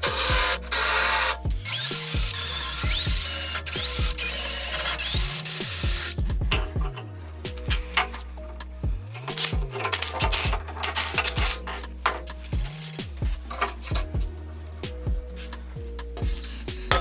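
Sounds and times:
drill boring through steel: 0.0 - 6.2
background music: 0.0 - 17.0.

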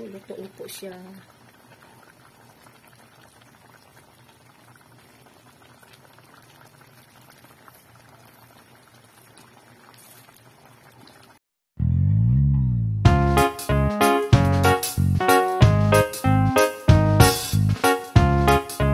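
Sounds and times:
broth simmering with pops: 0.0 - 11.4
loud music: 12.1 - 18.9.

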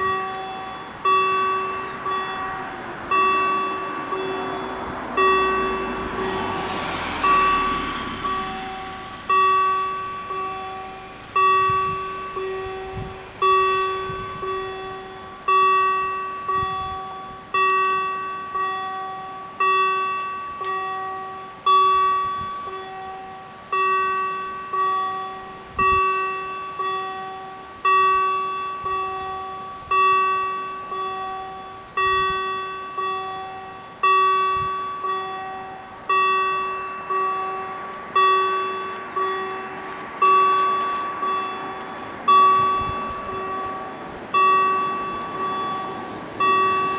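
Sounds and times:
level crossing warning bells: 0.0 - 46.9.

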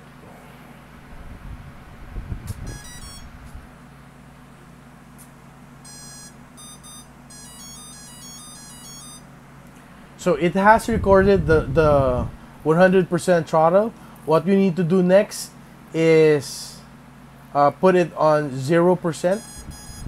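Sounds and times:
motor beep tones: 2.6 - 3.3, 5.8 - 9.3, 19.3 - 20.0.

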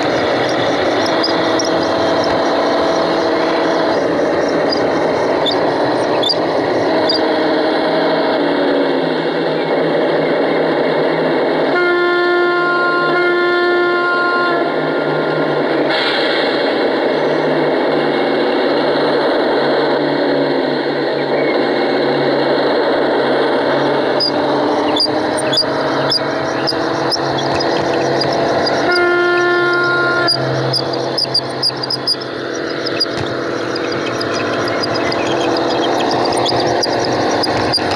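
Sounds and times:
model train running noise: 0.0 - 37.9
model locomotive horn: 11.7 - 16.1, 23.6 - 37.9.

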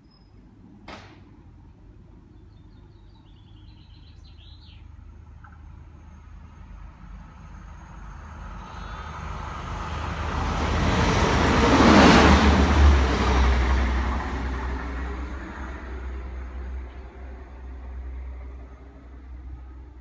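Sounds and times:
diesel train passing: 1.3 - 20.0.

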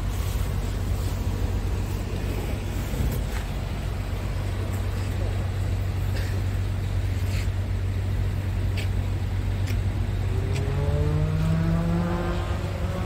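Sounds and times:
diesel engine idling: 0.0 - 13.0
second engine revving: 8.8 - 13.0.

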